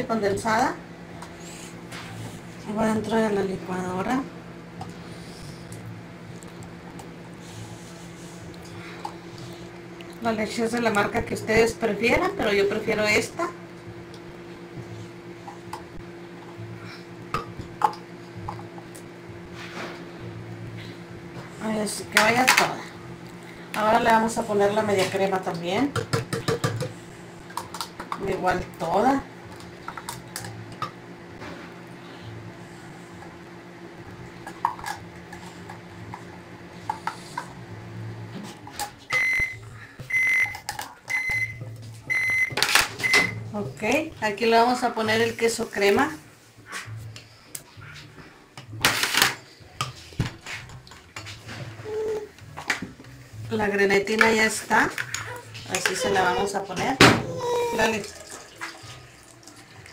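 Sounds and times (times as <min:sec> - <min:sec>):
microwave oven humming: 0:00.0 - 0:50.9
microwave beeps: 0:39.1 - 0:43.5.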